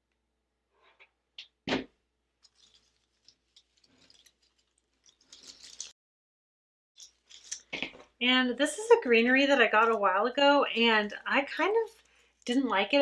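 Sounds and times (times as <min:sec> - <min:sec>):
crackling and rustling of stems: 0:02.4 - 0:06.0, 0:07.0 - 0:08.1.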